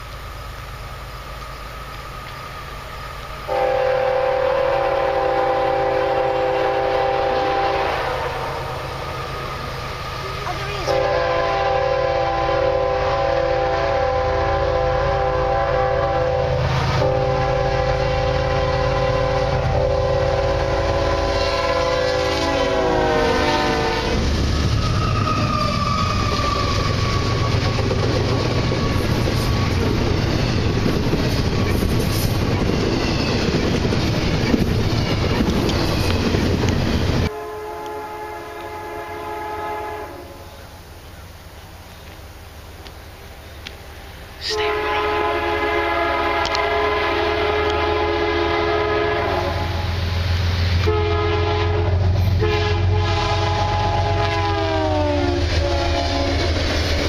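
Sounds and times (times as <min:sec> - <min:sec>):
train wheels squealing: 0:00.0 - 0:03.6, 0:08.5 - 0:10.8, 0:24.5 - 0:37.3
freight train rumbling and clattering: 0:00.0 - 0:39.0, 0:42.8 - 0:57.0
distant train horn: 0:01.1 - 0:30.8, 0:37.2 - 0:40.7, 0:44.4 - 0:56.7
train air horn blasts: 0:03.4 - 0:27.7, 0:37.3 - 0:40.6, 0:44.4 - 0:56.6.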